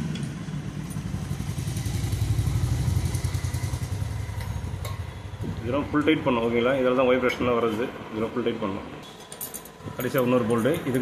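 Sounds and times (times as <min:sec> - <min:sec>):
motorcycle engine running: 0:00.0 - 0:07.5.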